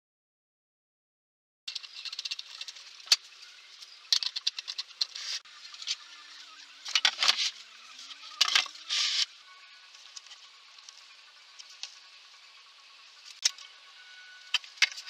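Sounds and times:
tools and parts clicking and rattling: 1.7s - 9.3s, 14.4s - 15.0s.

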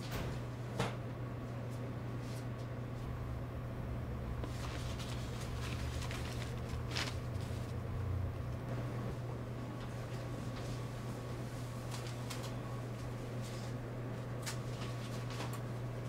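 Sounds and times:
steady low hum: 0.0s - 16.0s
faint rumble: 3.0s - 10.3s.

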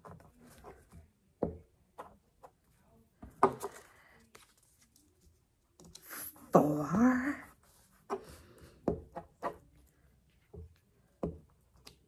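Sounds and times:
paper rustling: 3.6s - 6.1s.

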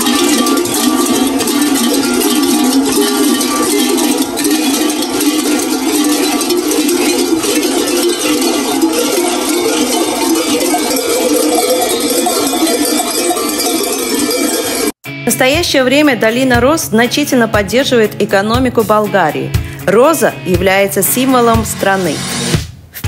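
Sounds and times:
large bells clanging: 0.0s - 15.0s.

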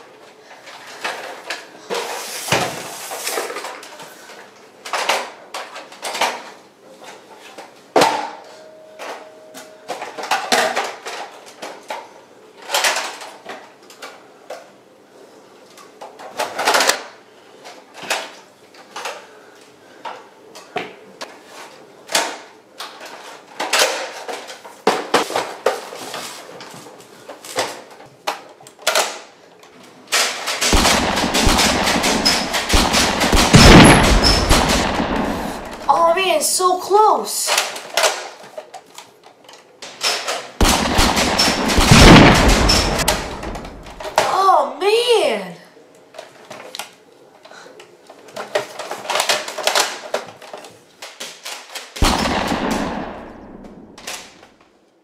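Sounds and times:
loud dense clatter: 30.6s - 36.0s, 40.6s - 44.2s.

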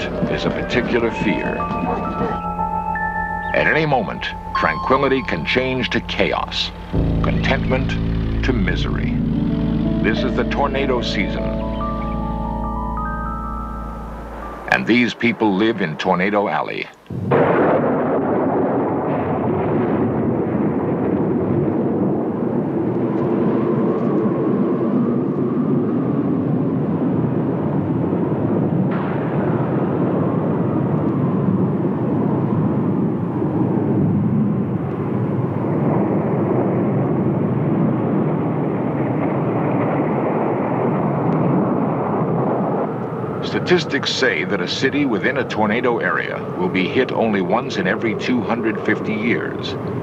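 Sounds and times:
tornado roaring wind: 0.0s - 11.5s, 14.0s - 50.0s
faint wavering howl: 0.0s - 15.7s, 40.9s - 50.0s.

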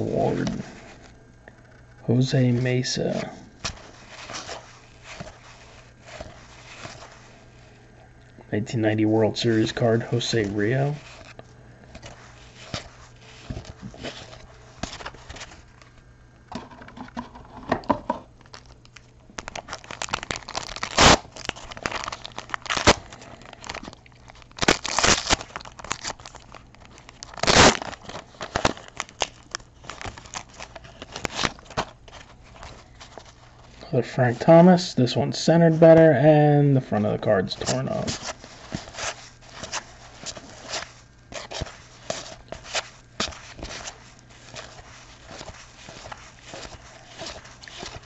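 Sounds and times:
cards rustling: 2.4s - 7.7s, 8.9s - 16.1s, 18.4s - 34.5s, 37.0s - 48.0s
wrapper tearing and crinkling: 18.4s - 33.8s, 37.6s - 48.0s.

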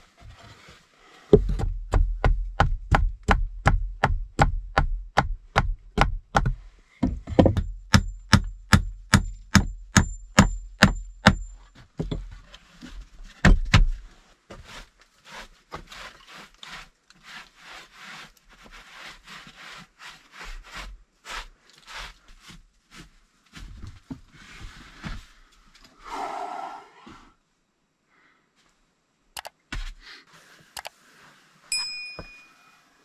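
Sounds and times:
hammer striking wooden bench: 1.4s - 11.5s
cloth wiping plank: 14.5s - 23.7s
faint metallic ring: 31.7s - 33.0s.

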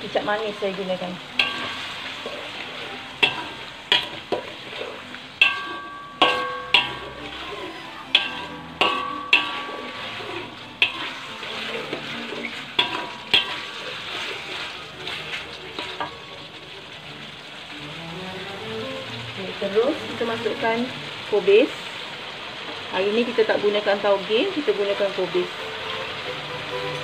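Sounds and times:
food sizzling: 0.0s - 27.0s
metal spatula knocking on wok: 1.4s - 2.0s, 3.2s - 4.5s, 5.4s - 11.2s, 12.8s - 13.8s.

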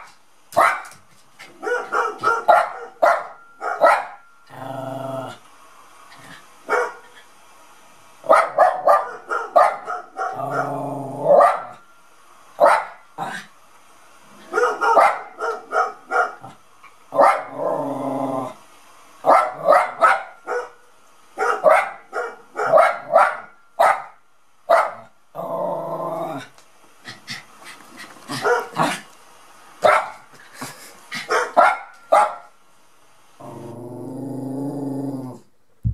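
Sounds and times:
dog barking: 0.0s - 1.0s, 1.6s - 4.2s, 6.7s - 7.0s, 8.2s - 11.8s, 12.6s - 13.0s, 14.4s - 17.6s, 19.2s - 20.8s, 21.4s - 25.1s, 28.3s - 29.0s, 29.8s - 30.2s, 31.2s - 32.5s.

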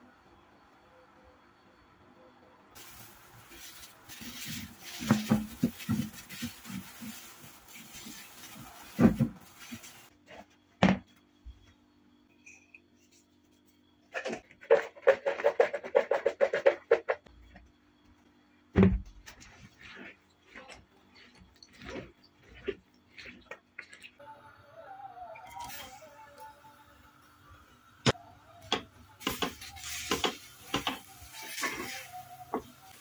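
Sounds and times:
cling film crinkling: 2.8s - 10.1s, 29.2s - 33.0s
salt ticking on food: 2.8s - 10.1s, 28.7s - 33.0s
thump: 18.8s - 19.1s.

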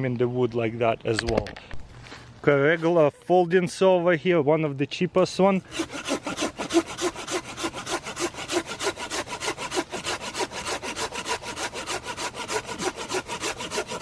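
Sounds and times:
hand saw cutting branch: 5.6s - 14.0s.

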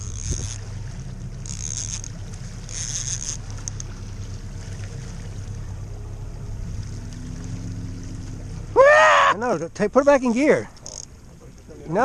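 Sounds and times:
wind noise: 0.0s - 0.8s
boat motor running: 0.0s - 12.0s
water noise: 0.0s - 12.0s.

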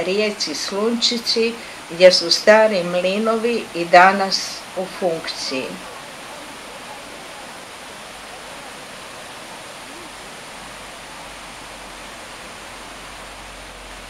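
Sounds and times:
waterfall and rapids rushing: 0.0s - 14.0s.

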